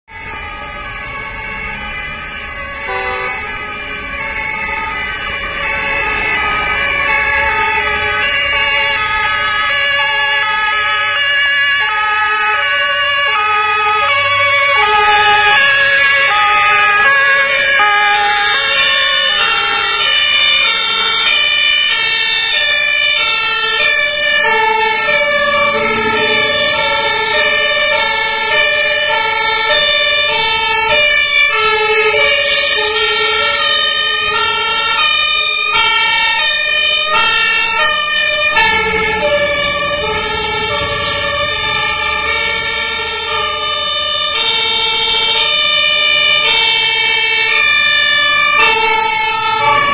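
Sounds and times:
fire engine two-tone sirens: 0:00.0 - 0:49.9
truck diesel engine rumble: 0:13.8 - 0:46.4, 0:47.1 - 0:49.9.

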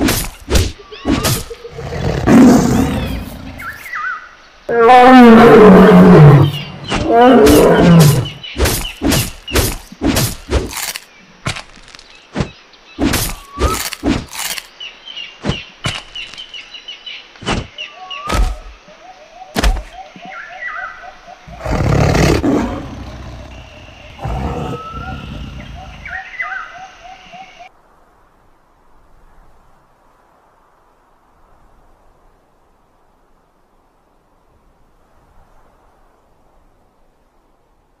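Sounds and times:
big cat roaring: 0:01.7 - 0:03.6, 0:04.7 - 0:08.4, 0:21.5 - 0:26.1
loud growl: 0:21.5 - 0:26.0.

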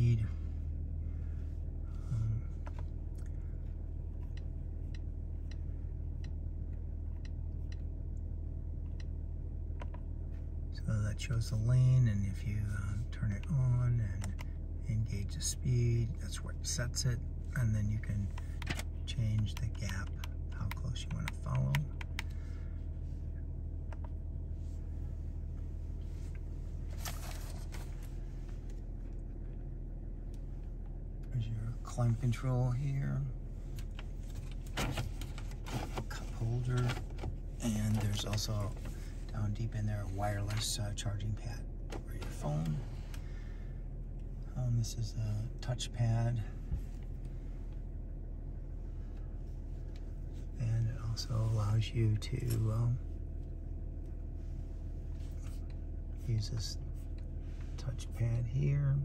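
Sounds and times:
car engine idling: 0:00.0 - 0:59.0
light ticking: 0:04.1 - 0:09.2.

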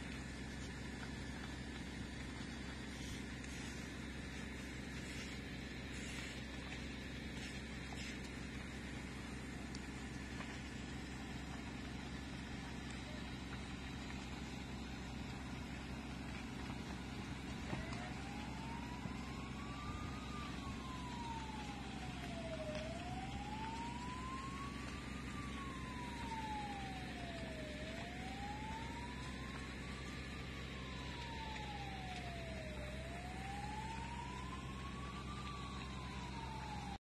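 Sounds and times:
siren slow wail: 0:00.0 - 0:37.0
steady low rumble: 0:00.0 - 0:37.0.

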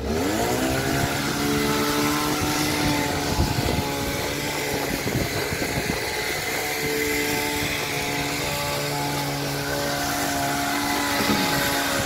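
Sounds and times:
hedge trimmer engine running: 0:00.0 - 0:12.0.

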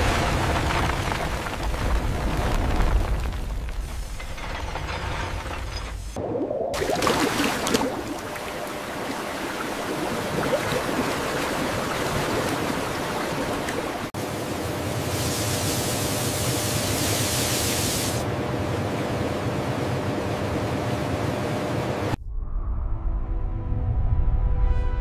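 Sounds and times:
water gushing into a tank: 0:06.2 - 0:13.9.

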